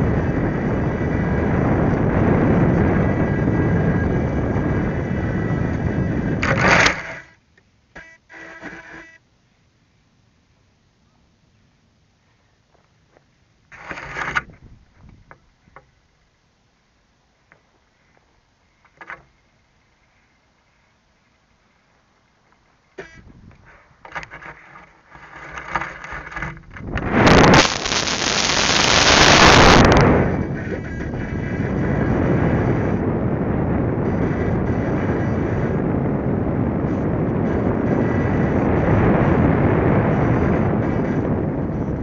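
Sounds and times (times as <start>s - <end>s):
wind noise over microphone: 0.0s - 7.4s, 14.2s - 15.4s, 23.1s - 23.8s, 26.4s - 42.0s
loud rush of air: 26.8s - 30.6s.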